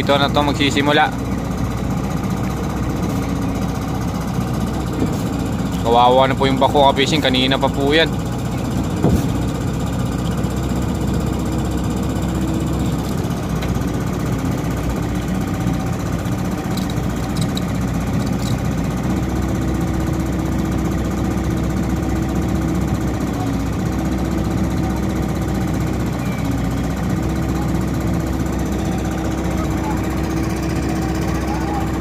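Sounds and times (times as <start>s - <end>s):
excavator diesel engine straining: 0.0s - 32.0s.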